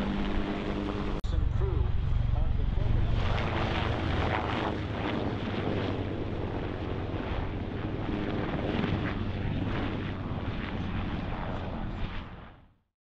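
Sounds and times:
helicopters flying low past: 0:00.0 - 0:12.8.

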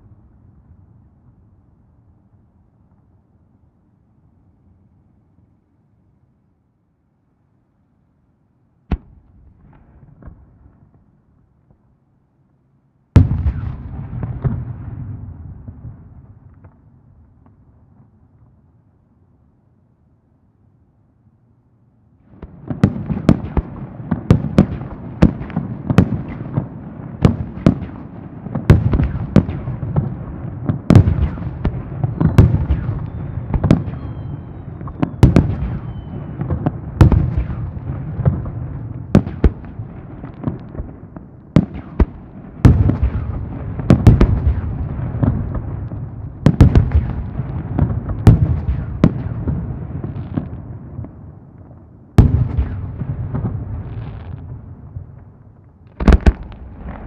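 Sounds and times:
fireworks booming: 0:13.2 - 0:17.6, 0:22.2 - 0:57.0
echoing rumble and crackle: 0:22.2 - 0:57.0.

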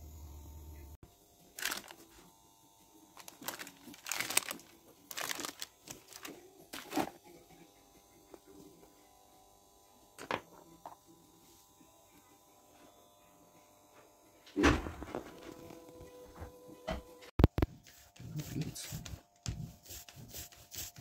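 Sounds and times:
paper and tools rustling and knocking: 0:01.6 - 0:02.1, 0:03.2 - 0:07.2.

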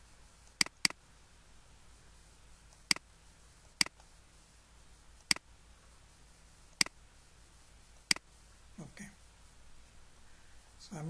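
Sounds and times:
computer mouse clicks: 0:00.5 - 0:01.0, 0:02.7 - 0:03.1, 0:03.7 - 0:04.1, 0:05.2 - 0:05.5, 0:08.0 - 0:08.3.

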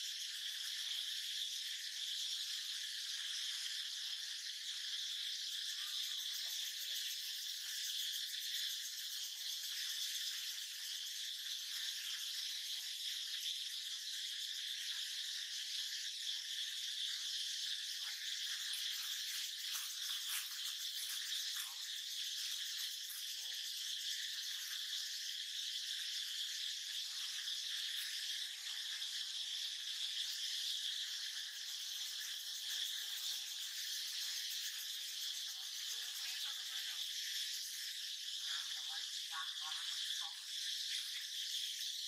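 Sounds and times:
insect chorus drone: 0:00.0 - 0:42.0.

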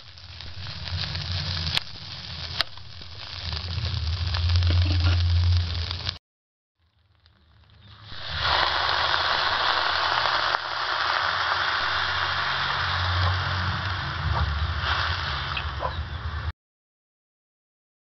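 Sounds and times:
food sizzling: 0:00.0 - 0:06.2, 0:07.2 - 0:16.5
water hissing in hot wok: 0:00.0 - 0:06.2, 0:07.8 - 0:16.5.

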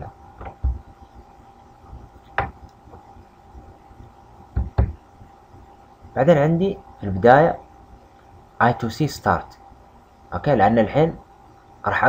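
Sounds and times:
faint steady hum: 0:00.0 - 0:12.0
soft knocks and clicks: 0:02.3 - 0:03.1.

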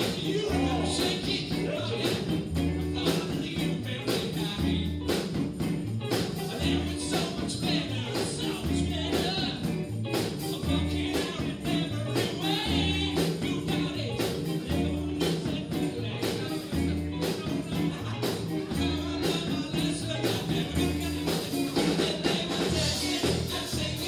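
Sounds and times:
woman singing lead: 0:00.0 - 0:05.1
drums: 0:00.0 - 0:24.0
electric bass: 0:00.0 - 0:24.0
electric guitar: 0:00.0 - 0:24.0.

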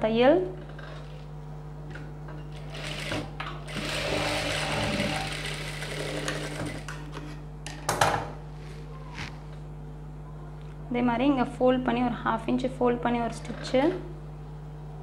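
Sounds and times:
sewing machine running: 0:02.6 - 0:07.0.

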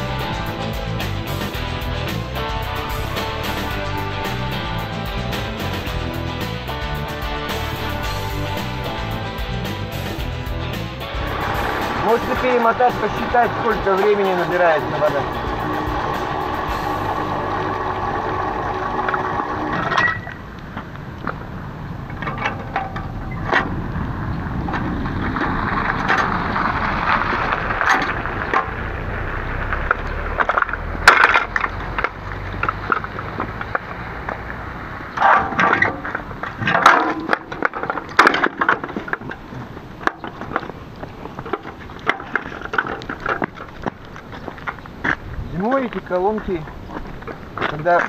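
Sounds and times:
hand cart rattling: 0:00.0 - 0:48.0
metal can clanking: 0:35.2 - 0:40.7.

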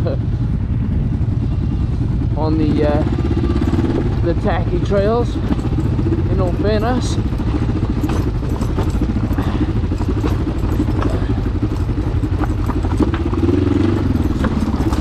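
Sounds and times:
motorcycle engine running: 0:00.0 - 0:15.0
bike clattering over rough ground: 0:03.6 - 0:15.0.

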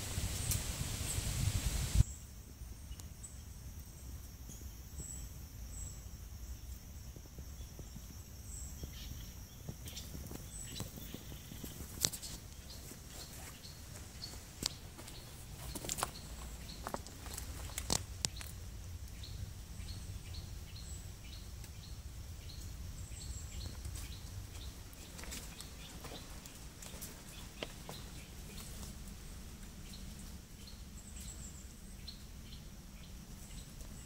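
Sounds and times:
rustling hiss: 0:00.0 - 0:34.0
rock fragments crunching underfoot: 0:10.0 - 0:18.6, 0:23.6 - 0:29.1.

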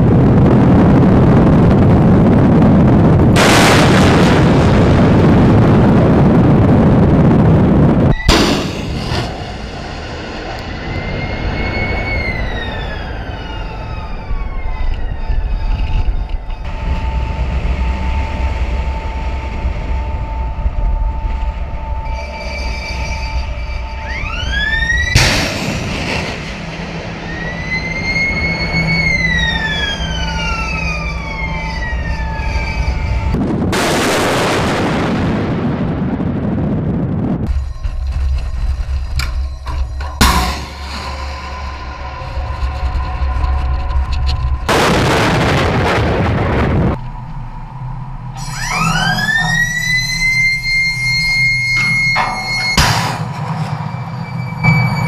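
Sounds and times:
rocket motor roaring: 0:00.0 - 0:55.0
steady low rumble: 0:00.0 - 0:55.0
missile launch blast: 0:00.3 - 0:11.6, 0:25.2 - 0:27.8, 0:33.4 - 0:37.4, 0:44.7 - 0:47.0
siren-like whistles: 0:08.1 - 0:08.4, 0:09.2 - 0:33.5, 0:37.4 - 0:45.4, 0:46.9 - 0:55.0.

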